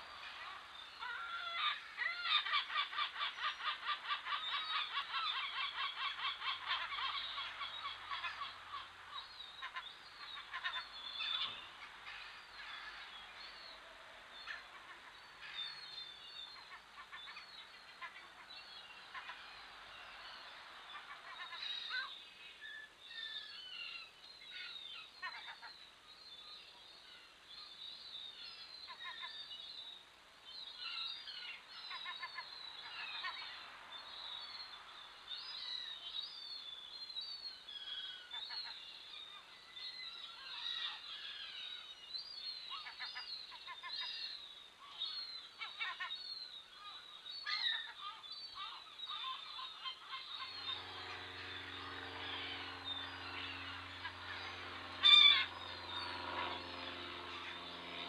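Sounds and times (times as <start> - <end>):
birds chirping and twittering: 0.0 - 58.0
low steady hum: 48.8 - 58.0.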